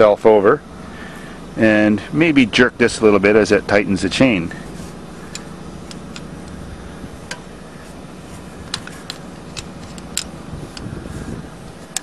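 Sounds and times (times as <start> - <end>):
steady low hum: 0.0 - 12.0
wrench clicking on metal bolt: 8.7 - 10.9.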